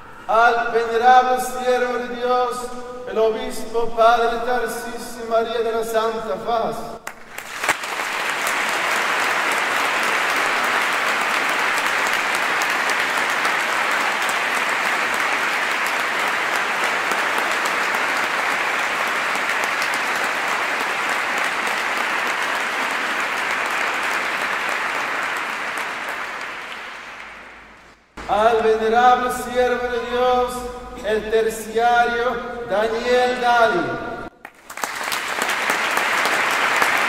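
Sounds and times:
crowd applauding: 7.1s - 28.0s, 34.4s - 37.0s.

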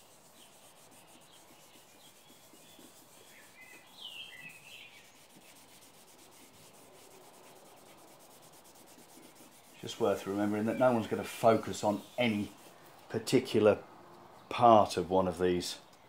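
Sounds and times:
cloth rag rubbing a panel: 0.0s - 12.8s.

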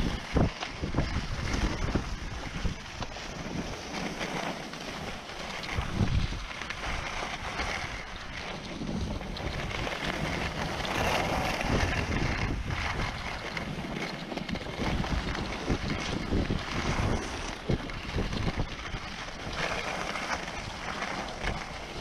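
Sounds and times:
skis sliding on snow: 0.0s - 22.0s
wind buffeting microphone: 0.0s - 22.0s.

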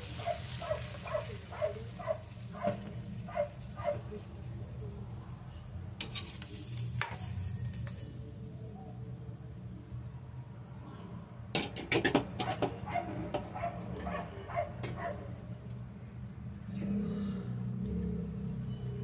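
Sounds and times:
dog barking: 0.2s - 4.1s, 12.4s - 15.3s.

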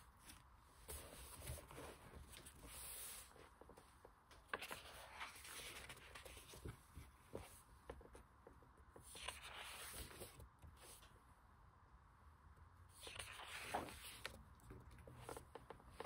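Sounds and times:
page turning swish: 9.1s - 11.0s, 13.0s - 14.4s.

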